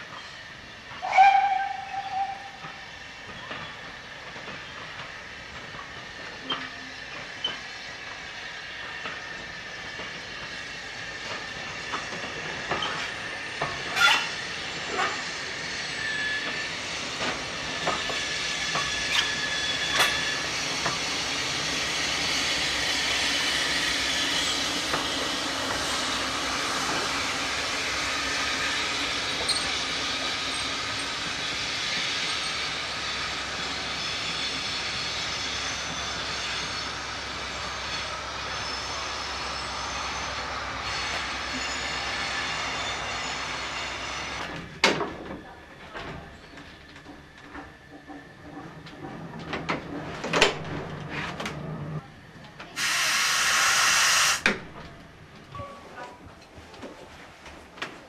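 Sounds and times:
train wheels clicking over rail joints: 2.5s - 22.8s, 23.7s - 38.9s
wheel squeals: 13.9s - 16.8s, 28.7s - 32.8s, 33.4s - 44.5s
steam exhaust hissing: 52.8s - 54.5s.

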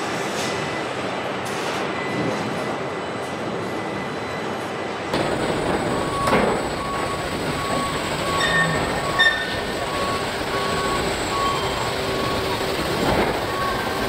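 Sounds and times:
assembly line machinery hum: 0.0s - 14.0s
electronic warning beeper: 5.2s - 14.0s.

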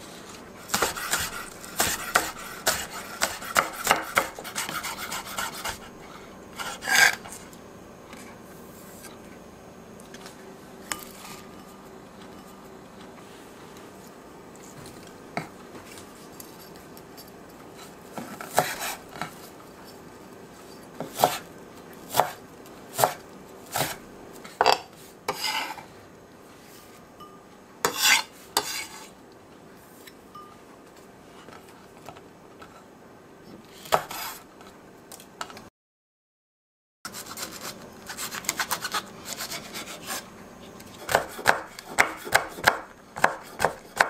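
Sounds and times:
knife cutting on wooden board: 0.7s - 5.9s, 18.4s - 19.0s, 21.0s - 21.4s, 27.9s - 29.1s, 33.8s - 34.4s, 41.0s - 44.0s.

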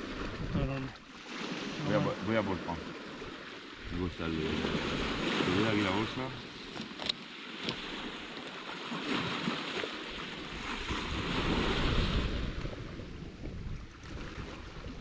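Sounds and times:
wind buffeting microphone: 0.0s - 0.9s, 10.4s - 15.0s
sea waves washing on shore: 0.0s - 15.0s.

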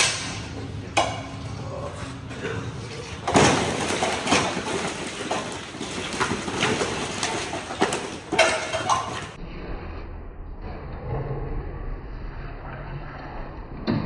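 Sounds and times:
steady low rumble: 9.4s - 14.0s.

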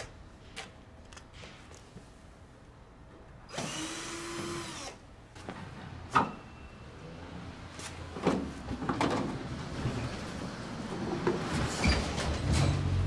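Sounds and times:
cordless drill running: 3.5s - 5.0s.

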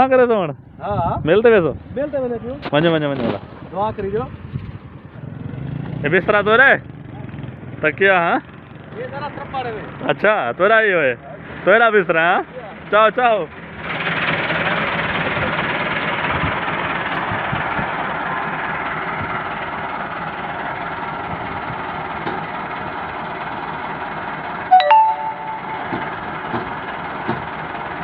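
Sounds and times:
tractor diesel engine running: 12.7s - 24.7s, 25.9s - 28.0s
sharp stepped-pitch tone: 24.7s - 26.2s.

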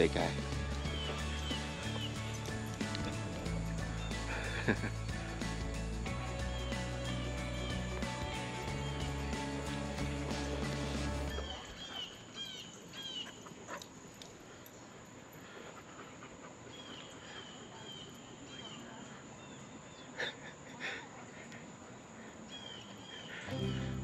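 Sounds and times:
background music: 0.0s - 11.6s, 23.5s - 24.0s
birds chirping: 0.0s - 20.8s, 21.4s - 24.0s.

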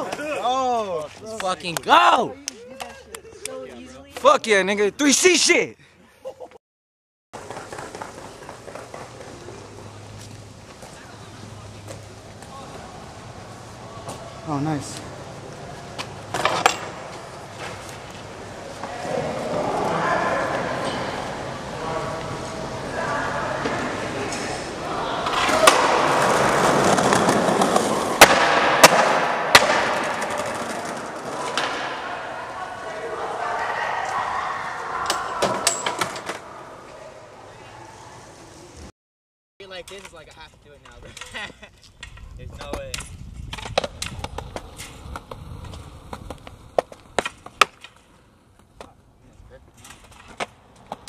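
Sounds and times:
skateboard hitting ground: 7.4s - 9.9s, 16.0s - 20.8s, 25.2s - 32.3s, 42.6s - 49.0s
skateboard wheels rolling: 7.4s - 38.9s, 40.5s - 51.0s.

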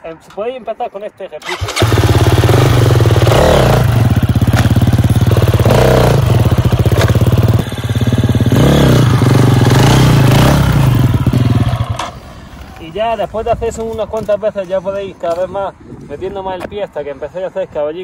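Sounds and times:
motorcycle engine idling: 1.4s - 12.2s
motorcycle throttle revs: 1.4s - 12.2s.

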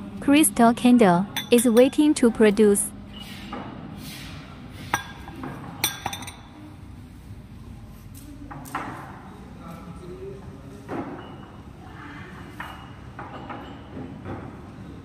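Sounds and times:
glass jars clinking: 1.3s - 2.2s, 5.8s - 6.5s.

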